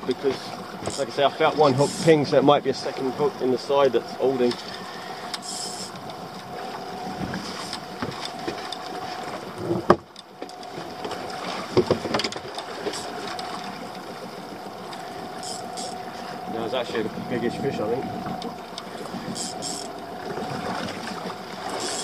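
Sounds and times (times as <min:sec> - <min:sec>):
water lapping around boat: 0:00.0 - 0:22.0
wind: 0:00.0 - 0:22.0
knocks on boat: 0:09.6 - 0:13.0.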